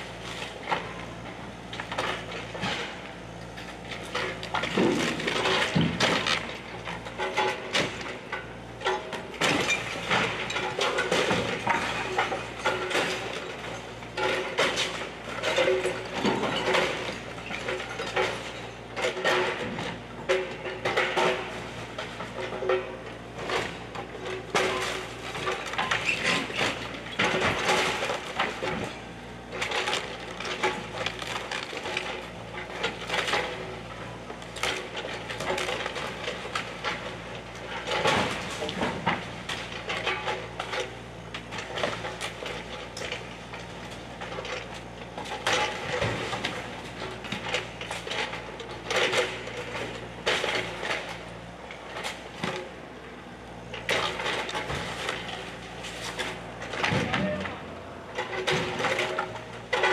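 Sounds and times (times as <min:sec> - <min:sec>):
excavator engine humming: 0:00.0 - 0:09.4, 0:46.6 - 0:59.9.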